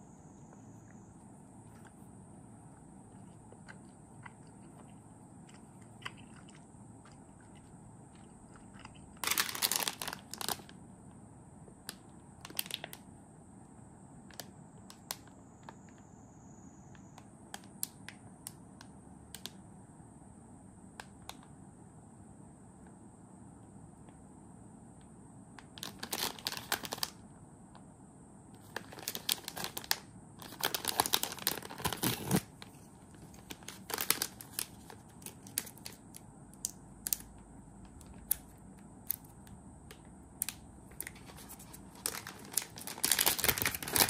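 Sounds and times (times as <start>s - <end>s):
plastic packaging crinkling: 8.5s - 10.8s, 12.4s - 13.0s, 25.8s - 27.2s, 28.6s - 36.2s, 40.9s - 44.0s.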